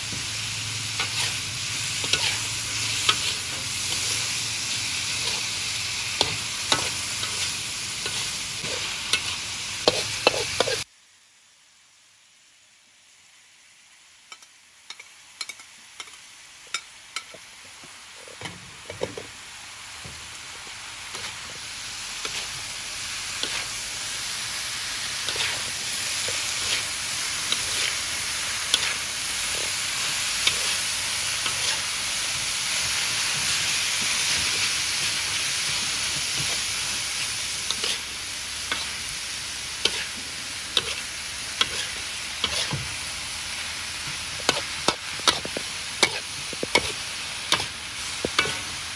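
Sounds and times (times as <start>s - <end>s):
food sizzling in a wok: 0.0s - 48.9s
metal spatula scraping wok: 0.8s - 10.8s, 21.0s - 48.8s.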